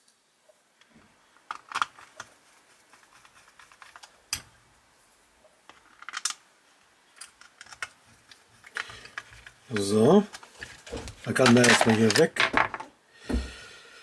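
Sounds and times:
model car parts clicking: 0.8s - 4.5s, 5.6s - 6.5s, 7.1s - 12.7s.

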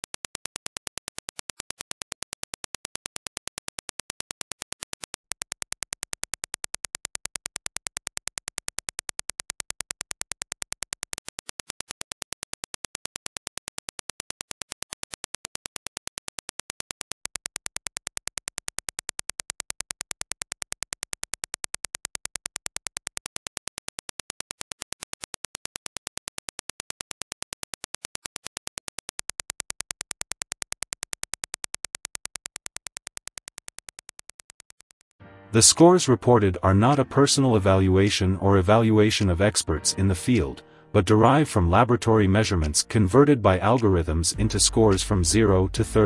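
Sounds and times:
rapid sharp clicks: 0.0s - 35.2s.

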